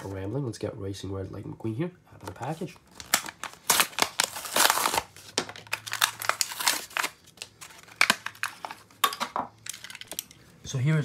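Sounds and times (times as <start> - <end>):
plastic packaging crinkling: 2.4 - 10.3.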